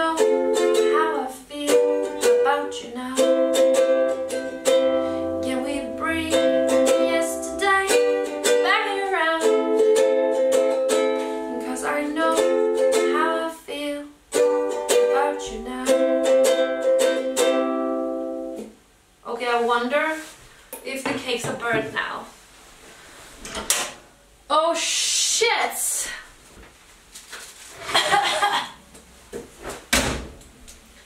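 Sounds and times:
woman singing: 0.0 - 4.5, 5.3 - 10.5, 11.2 - 14.2, 14.9 - 16.5
ukulele strumming chords: 0.0 - 13.5, 14.3 - 18.8.

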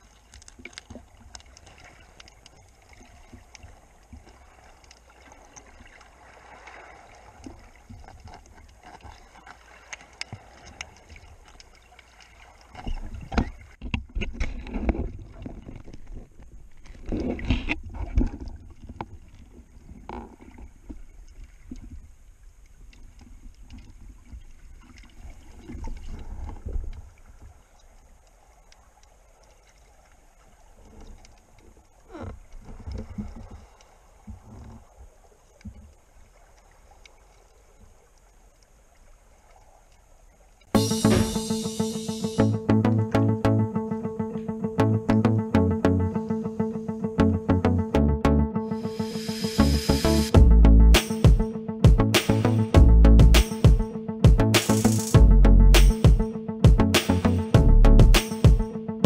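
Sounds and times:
underwater surf sloshing and rumbling: 0.0 - 41.8.

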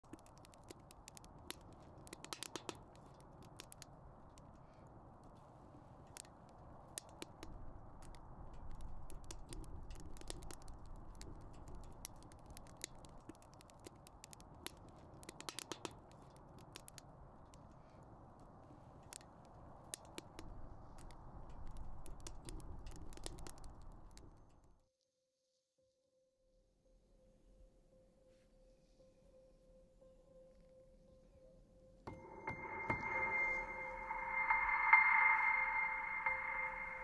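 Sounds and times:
fire crackling and popping: 0.0 - 5.3, 6.0 - 24.6.

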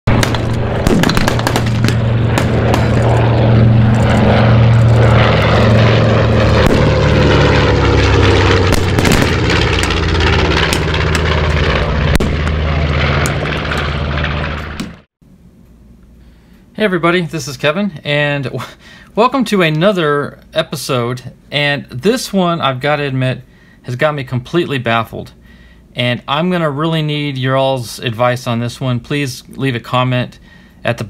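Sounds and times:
sharp crackles: 0.1 - 15.0
propeller aircraft engines: 0.1 - 31.0.

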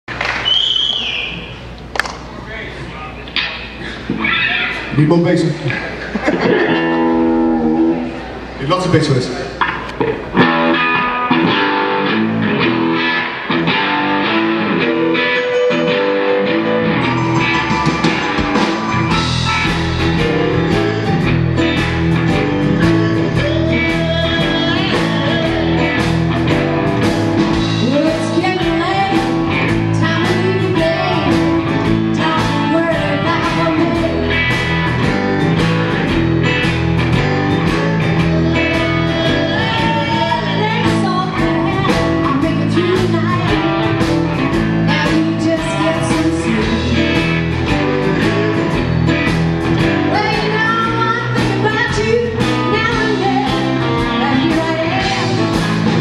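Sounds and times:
electric guitar: 3.2 - 8.6, 9.4 - 56.0
electric bass: 5.9 - 8.6, 9.5 - 56.0
steady drum beat: 17.2 - 56.0
person singing: 19.1 - 26.6, 27.7 - 34.7, 37.6 - 44.1, 44.8 - 49.4, 50.0 - 56.0.

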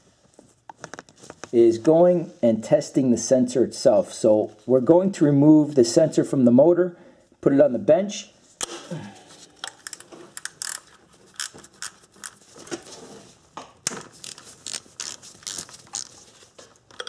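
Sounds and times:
ratchet wrench clicking: 9.8 - 10.8.

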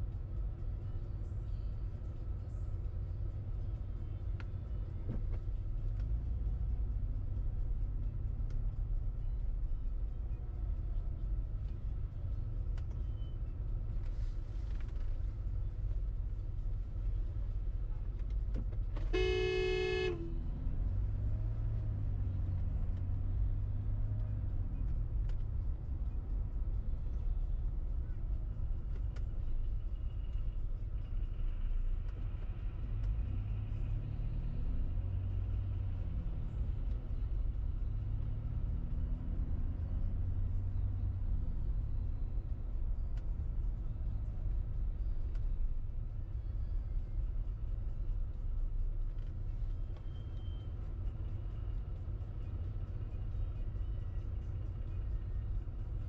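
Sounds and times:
engine and road noise: 0.0 - 56.0
car horn honking: 19.0 - 20.4.

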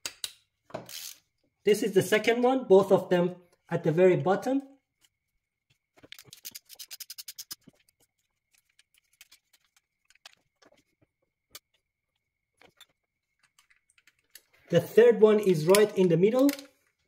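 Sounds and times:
hand ratchet clicking: 0.9 - 1.2.

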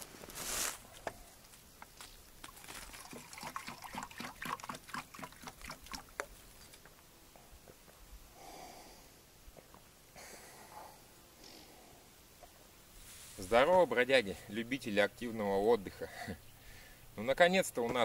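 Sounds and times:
person drinking: 2.5 - 6.1
water glugging into metal mug: 2.9 - 6.0
person breathing out: 8.3 - 9.2, 10.2 - 12.1, 16.6 - 17.1.

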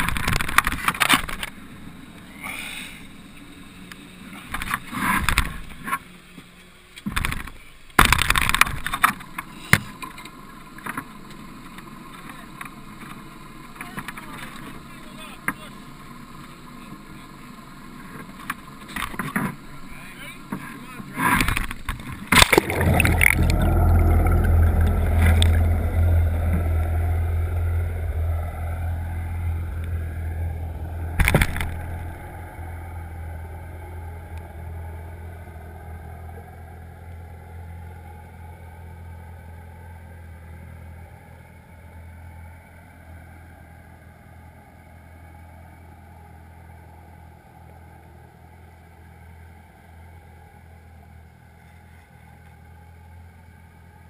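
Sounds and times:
underwater engine hum: 0.0 - 54.0
splash in water: 22.3 - 25.6.

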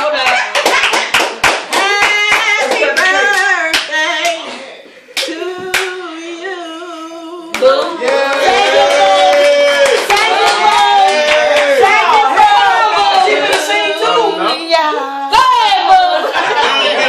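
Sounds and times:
hand clapping: 0.0 - 4.4, 9.2 - 12.0
people singing: 1.8 - 9.3.

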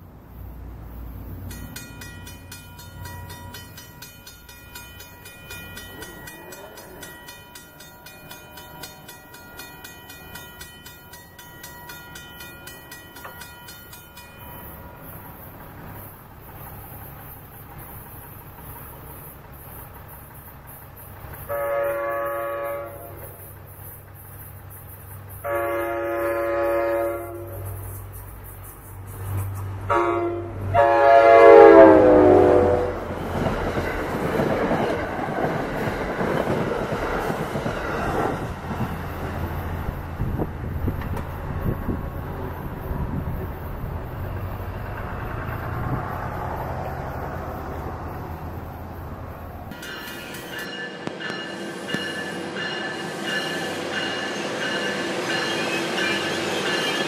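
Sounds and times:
crossing signal bell ringing: 1.4 - 18.3, 49.7 - 57.0
locomotive horn blasts: 21.5 - 23.2, 25.4 - 27.7, 29.9 - 33.1.

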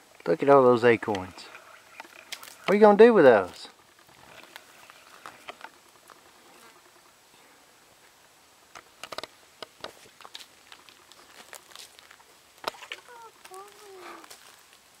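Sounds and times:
footsteps crunching dry leaves: 9.9 - 15.0.

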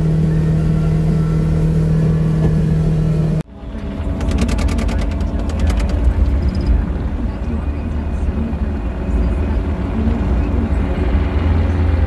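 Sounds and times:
low uneven rumble: 0.0 - 12.0
vehicle engine running: 0.0 - 12.0
quick run of clicks: 4.1 - 6.8.

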